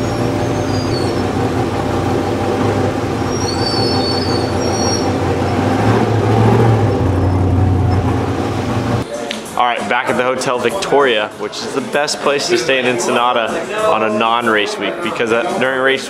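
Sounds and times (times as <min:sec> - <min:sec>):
brief high squeals: 0:00.0 - 0:01.4, 0:03.3 - 0:05.2
off-road vehicle engine drone: 0:00.0 - 0:09.0.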